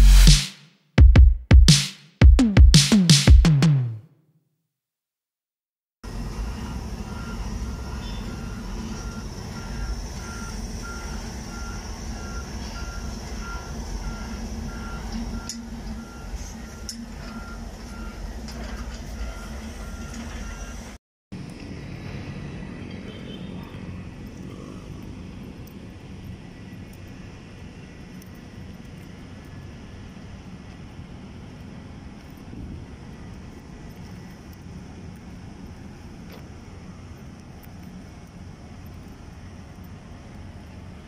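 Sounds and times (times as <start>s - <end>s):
heavy machinery engines rumbling: 6.1s - 41.0s
reversing alarm beeping: 6.3s - 21.0s.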